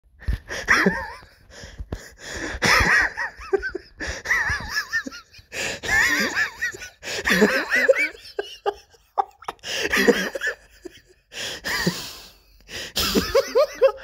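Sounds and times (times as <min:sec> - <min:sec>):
gasping breaths: 0:00.2 - 0:02.7, 0:03.9 - 0:04.4, 0:05.4 - 0:07.5, 0:09.5 - 0:10.1, 0:11.2 - 0:13.0
person laughing: 0:00.5 - 0:01.4, 0:02.4 - 0:12.2, 0:12.9 - 0:14.0.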